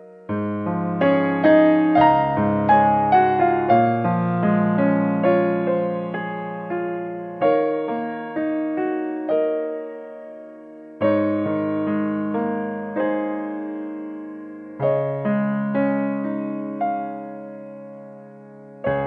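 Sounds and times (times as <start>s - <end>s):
slow piano music: 0.0s - 19.0s.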